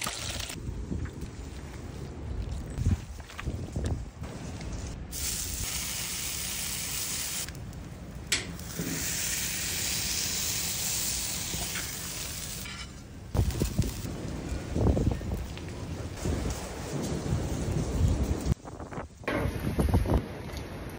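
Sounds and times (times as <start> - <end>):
potatoes sizzling on griddle: 5.1 - 7.5, 8.6 - 12.8.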